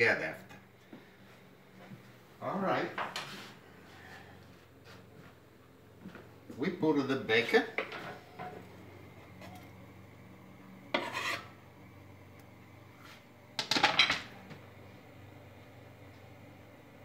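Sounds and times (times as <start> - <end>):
knife scraping a pan and board: 10.9 - 11.6.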